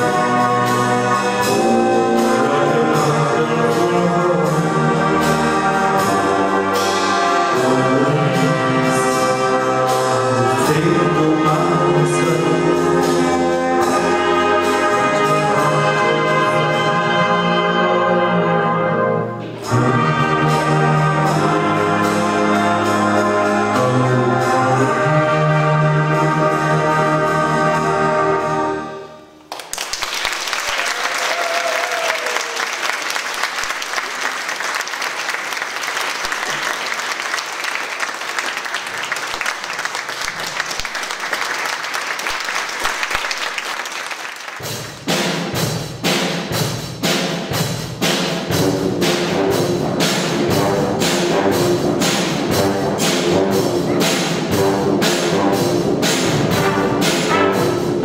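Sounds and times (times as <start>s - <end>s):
brass band playing: 0.0s - 58.0s
audience applauding: 29.5s - 45.0s.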